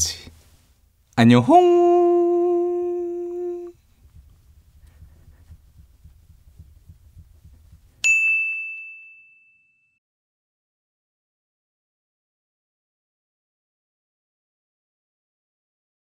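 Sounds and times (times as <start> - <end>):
faint low room rumble: 0.0 - 8.1
bright bell-like ding: 8.0 - 10.0.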